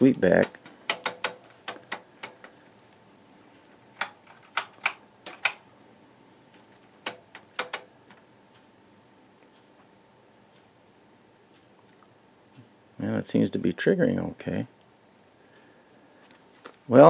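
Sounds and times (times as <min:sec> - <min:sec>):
rotary switch knobs clicking: 0:00.2 - 0:02.6, 0:04.0 - 0:05.6, 0:07.0 - 0:08.3.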